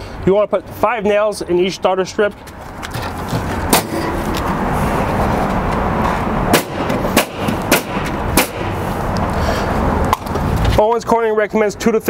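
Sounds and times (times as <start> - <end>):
steady background noise: 0.0 - 12.0
pneumatic nailer firing: 3.7 - 4.2, 6.5 - 8.8.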